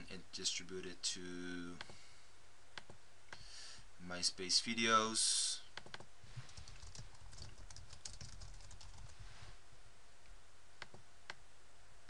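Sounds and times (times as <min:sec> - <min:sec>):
computer keyboard typing: 0:06.6 - 0:09.1.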